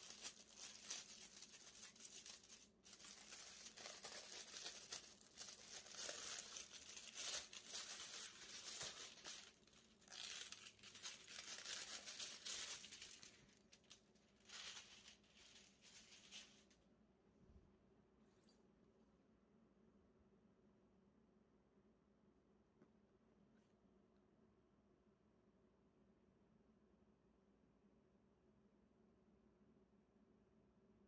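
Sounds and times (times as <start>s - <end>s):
plastic wrapping crinkling: 0.0s - 16.8s.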